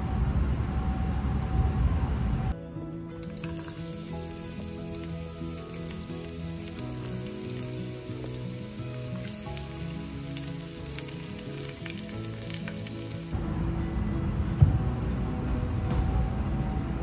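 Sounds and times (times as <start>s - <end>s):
soft background music: 0.7s - 17.0s
onion sizzling in hot oil: 3.2s - 13.4s.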